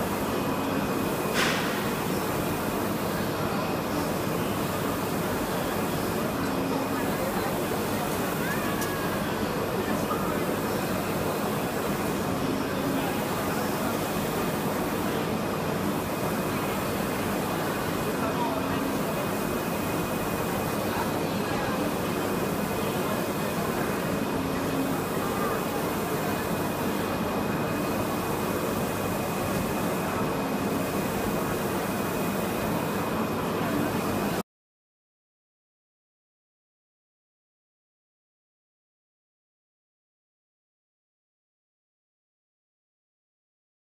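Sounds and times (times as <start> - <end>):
printer carriage whirring: 0.0 - 34.4.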